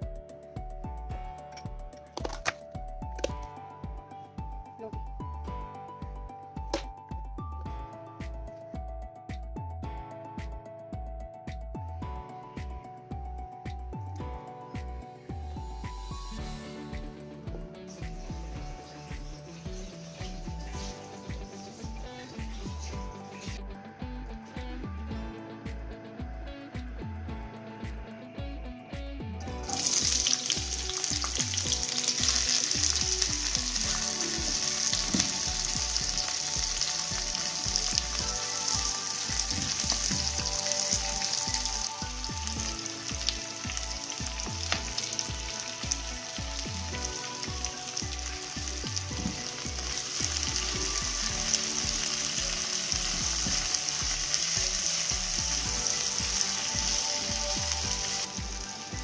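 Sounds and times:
crackles of frying oil: 0:15.6 - 0:28.0, 0:28.6 - 0:59.0
onions sizzling in hot oil: 0:18.4 - 0:22.6, 0:29.6 - 0:59.0.

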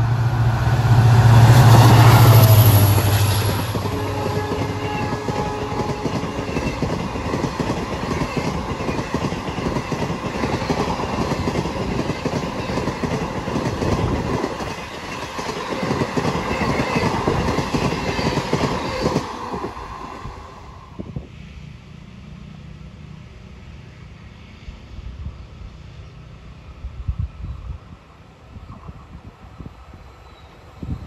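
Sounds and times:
train wheels clattering over rails: 0:01.1 - 0:20.2.

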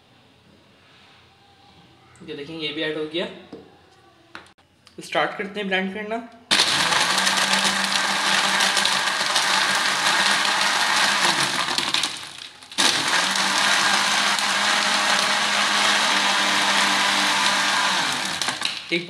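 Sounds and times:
blender motor running: 0:06.5 - 0:18.9
ice rattling in blender: 0:06.5 - 0:19.0.

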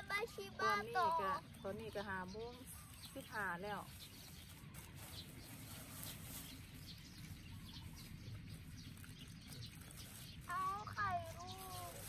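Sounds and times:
distant birds chirping: 0:00.0 - 0:12.0.

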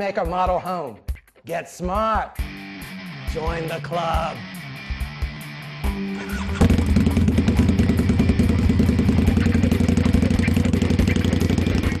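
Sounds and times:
motorcycle engine riding off: 0:06.3 - 0:12.0.

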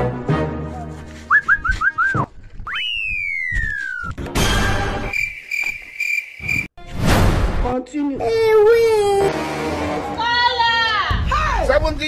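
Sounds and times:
whistle chirps: 0:01.3 - 0:06.7
pulsing high chirp: 0:02.9 - 0:06.7.

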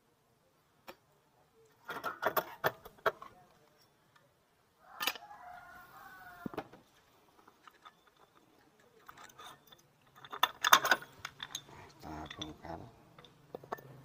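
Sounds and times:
rooster crowing: 0:04.8 - 0:06.6
metal clinks of tools: 0:07.6 - 0:14.0.

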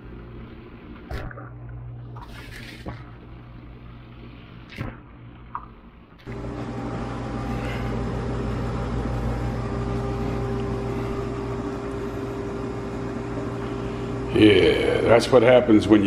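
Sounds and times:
dishwasher hum: 0:04.8 - 0:16.0.

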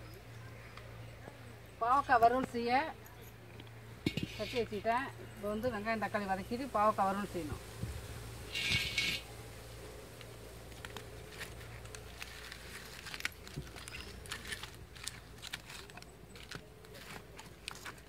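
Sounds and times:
firewood sticks knocking: 0:03.5 - 0:04.8, 0:07.5 - 0:09.3
wood fire crackling: 0:03.8 - 0:18.0.

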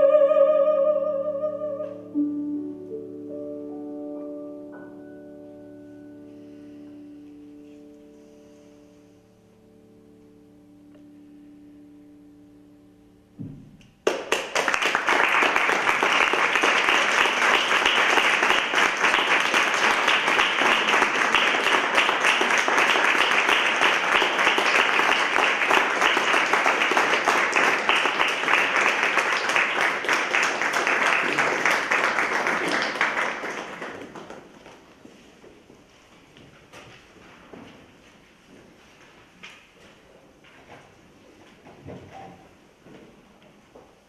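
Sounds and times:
audience applause: 0:14.0 - 0:35.0.

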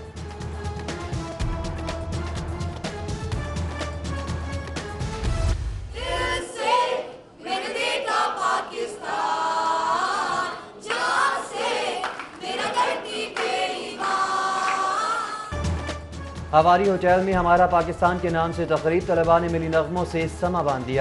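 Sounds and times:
background music: 0:00.0 - 0:07.2, 0:08.1 - 0:21.0
group singing through microphone: 0:05.9 - 0:15.6.

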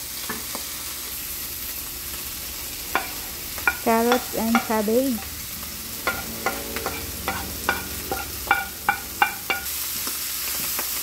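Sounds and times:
vegetables sizzling in a pan: 0:00.0 - 0:11.0
wooden spoon tapping a plate: 0:03.0 - 0:04.8, 0:06.1 - 0:09.7.

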